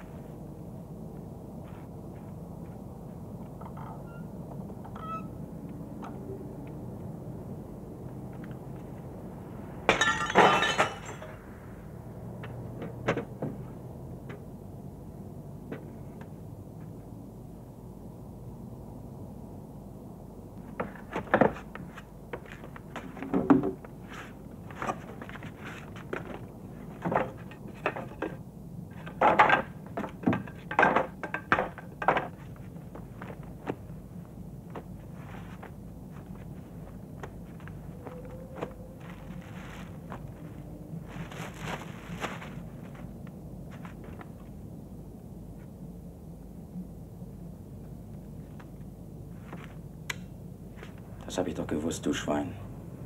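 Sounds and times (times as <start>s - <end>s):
glass smashing: 9.9s - 11.4s
wooden boards knocking and scraping: 20.6s - 21.8s, 22.4s - 23.8s, 27.0s - 28.4s, 29.0s - 33.4s.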